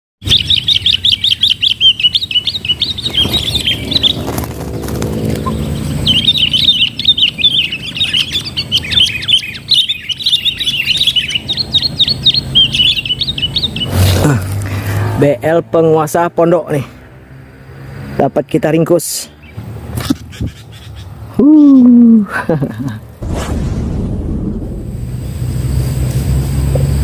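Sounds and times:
birds chattering call: 0.2s - 16.8s, 18.3s - 21.6s.

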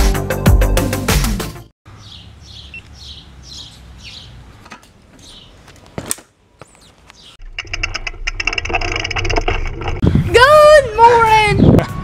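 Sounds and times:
bird chirping: 1.9s - 6.0s, 6.6s - 7.4s
bicycle rolling with ticking: 7.4s - 10.0s.

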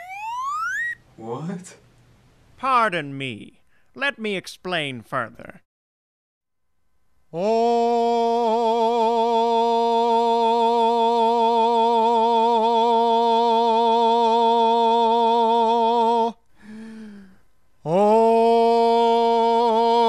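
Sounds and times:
man singing long notes with vibrato: 7.3s - 16.4s, 17.8s - 20.0s.

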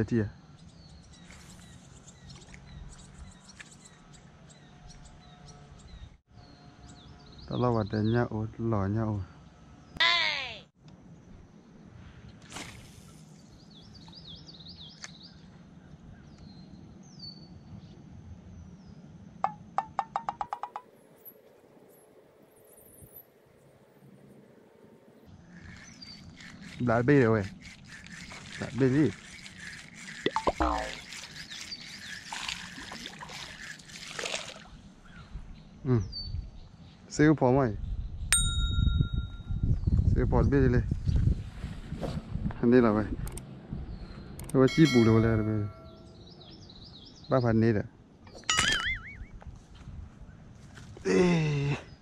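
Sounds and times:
birds chirping: 0.1s - 8.7s, 20.6s - 39.1s, 43.7s - 50.5s
person vocal sound falling in pitch: 10.0s - 10.6s
sharp clicks: 44.4s - 44.6s.

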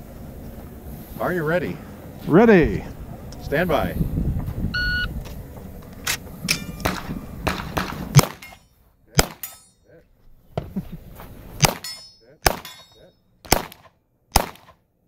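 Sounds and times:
metallic ring of steel targets: 6.1s - 10.0s, 11.6s - 13.3s
pistol shots: 6.8s - 8.6s, 9.2s - 9.6s, 11.6s - 14.8s.

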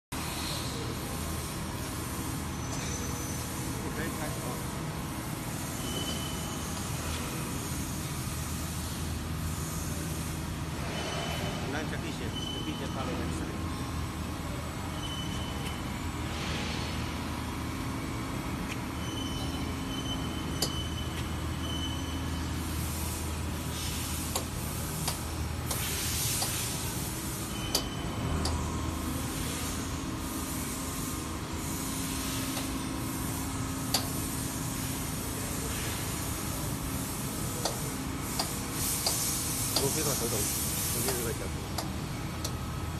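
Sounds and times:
bending machine motor hum: 0.2s - 42.9s.

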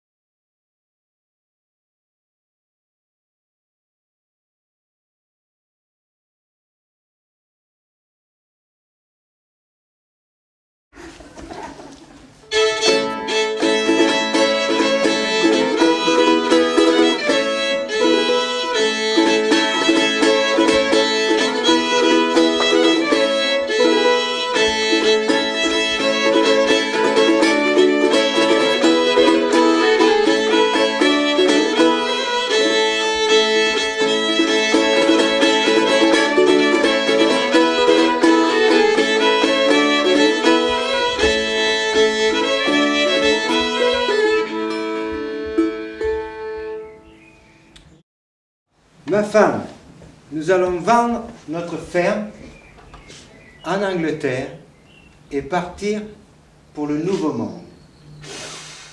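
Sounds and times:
old-time fiddle tune: 12.4s - 47.6s.

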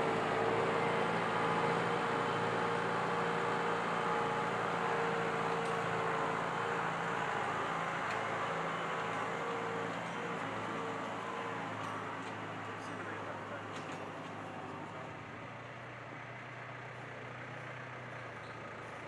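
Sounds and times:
tractor diesel engine running: 0.0s - 19.0s.

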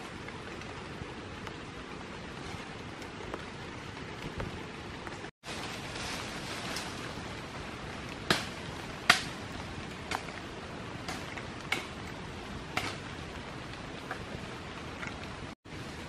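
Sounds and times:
rain hissing through forest: 0.0s - 16.0s
heavy drops tapping on leaves: 8.1s - 13.2s.

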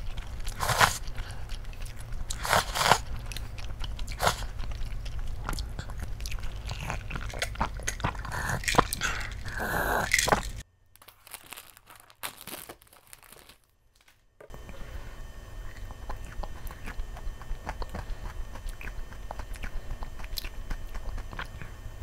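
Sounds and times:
chewing: 0.0s - 10.6s, 14.5s - 22.0s
gulping water: 0.0s - 10.6s, 15.6s - 22.0s.

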